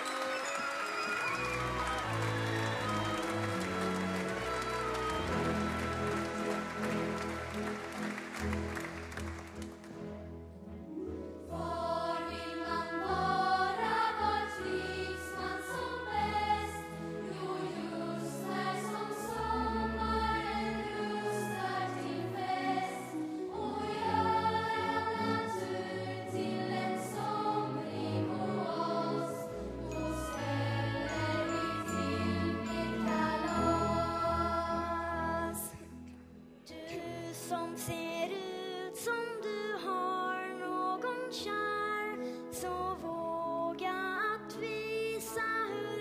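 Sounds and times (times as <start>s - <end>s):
orchestra playing: 0.0s - 35.4s
children's choir singing: 11.5s - 35.8s.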